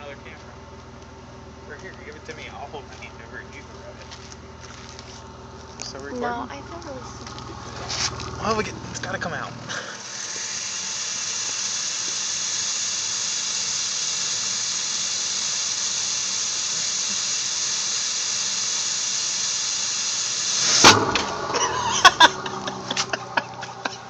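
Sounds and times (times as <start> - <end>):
exhaust hissing through tailpipe: 0.0 - 24.0.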